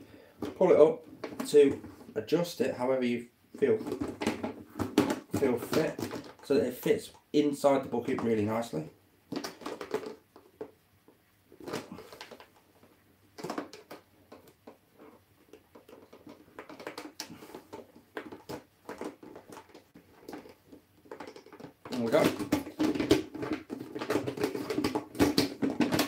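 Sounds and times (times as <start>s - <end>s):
plastic knocks and clicks: 0.4s - 2.1s, 3.8s - 6.5s, 9.3s - 10.8s, 13.4s - 26.0s.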